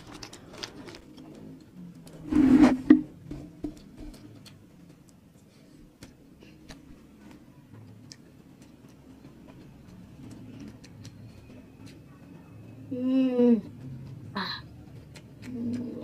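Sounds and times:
chewing crispy food: 0.0 - 2.0, 6.5 - 12.4, 13.9 - 16.0.

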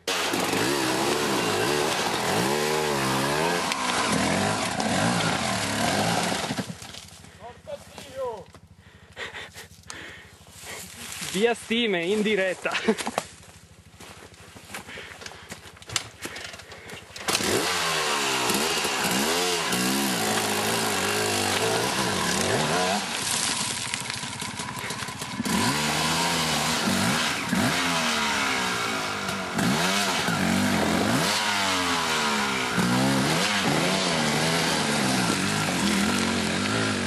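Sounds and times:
motorcycle engine revving: 0.0 - 7.4, 15.8 - 37.0.

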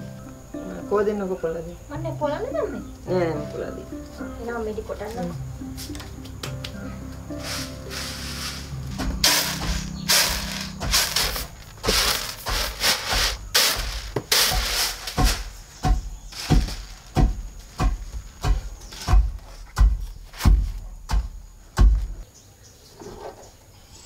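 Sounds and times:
beans and husks rustling on bamboo tray: 7.3 - 17.8.

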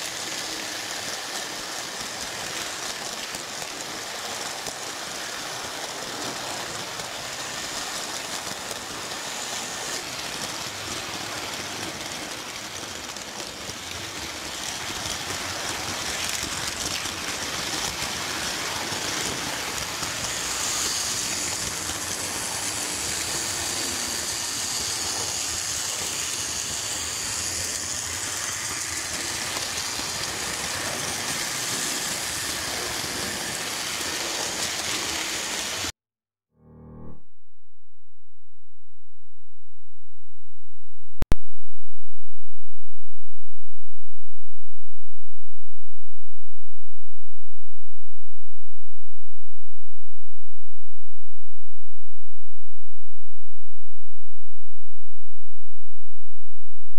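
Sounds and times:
toy trains on metal track: 0.0 - 35.9.

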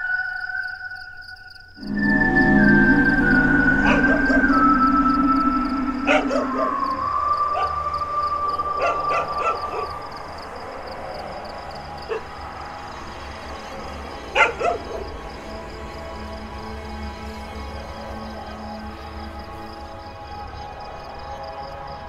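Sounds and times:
held organ-like music tone: 1.8 - 22.0
dog barking: 8.8 - 10.0, 12.1 - 12.3, 14.4 - 15.1.

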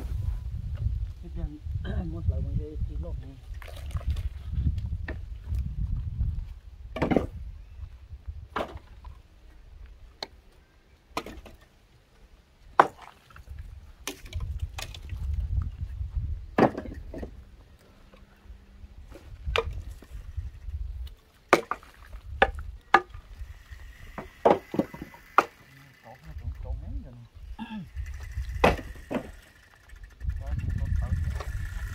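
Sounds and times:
blade chopping wood: 11.2 - 11.6, 12.8 - 13.1, 16.6 - 17.3, 21.5 - 23.2, 24.1 - 25.6, 28.6 - 29.4.

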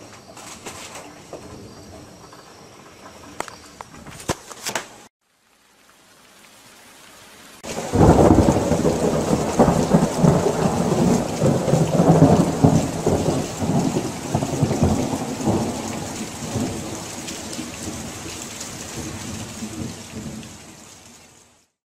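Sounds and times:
rain hissing: 0.0 - 21.8
thunder rolling: 7.6 - 20.6.

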